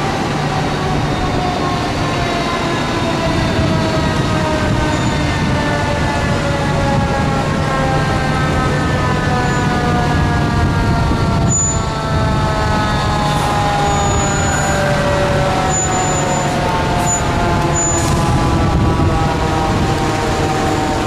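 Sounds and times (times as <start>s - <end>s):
diesel engines rumbling: 0.0s - 21.0s
fire truck sirens: 0.0s - 21.0s.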